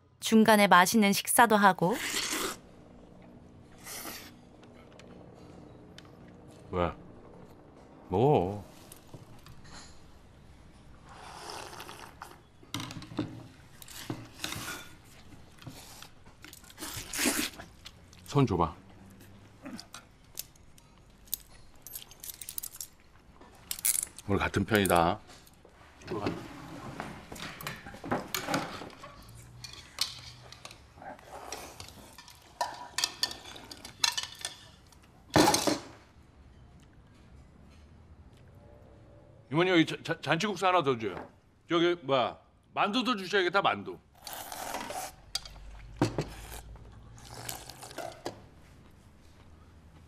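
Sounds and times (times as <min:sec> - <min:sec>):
slurping noodle soup: 0:02.0 - 0:02.7, 0:11.0 - 0:12.5, 0:13.8 - 0:17.9, 0:44.2 - 0:45.3, 0:46.2 - 0:48.2
eating noises: 0:11.1 - 0:12.4
utensils clinking against bowls: 0:31.6 - 0:34.9.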